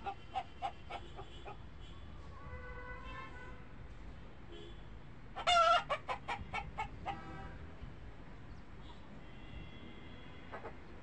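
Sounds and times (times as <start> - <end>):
hen calling and clucking: 0.0 - 1.6, 5.4 - 7.2.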